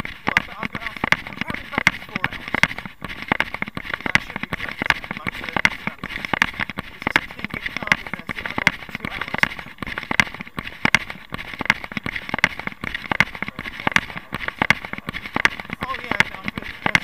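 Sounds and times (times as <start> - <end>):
camera rubbing and jolting: 0.0 - 17.0
footfalls on pavement: 0.0 - 17.0.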